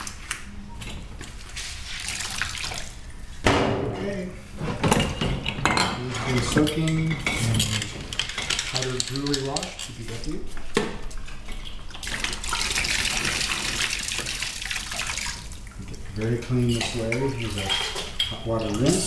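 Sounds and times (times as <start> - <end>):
water sloshing in a tub: 1.3 - 3.2, 11.1 - 19.0
water pouring into a tub: 1.8 - 3.0, 12.0 - 15.8
glass bottles clinking: 4.8 - 9.9, 16.6 - 19.0.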